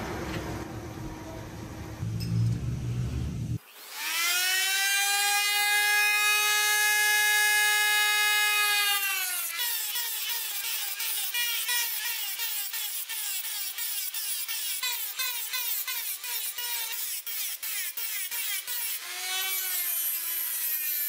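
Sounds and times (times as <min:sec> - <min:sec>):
low machine rumble: 0:00.0 - 0:03.6
power tool whining: 0:03.6 - 0:21.0.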